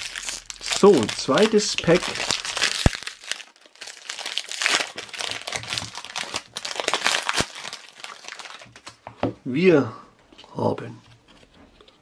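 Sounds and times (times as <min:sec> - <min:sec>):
foil wrapper crinkling: 0:00.0 - 0:09.0.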